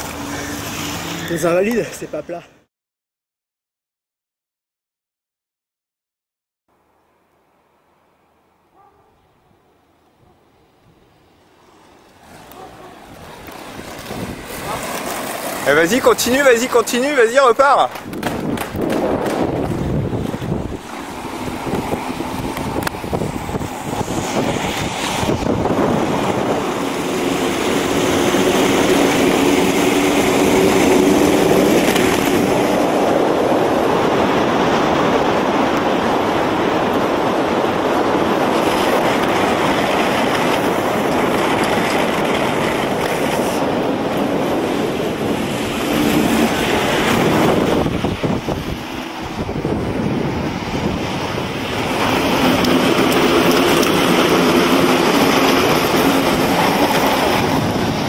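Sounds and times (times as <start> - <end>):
roller skate wheels on asphalt: 0.0 - 2.1, 10.8 - 58.0
wind buffeting microphone: 12.4 - 58.0.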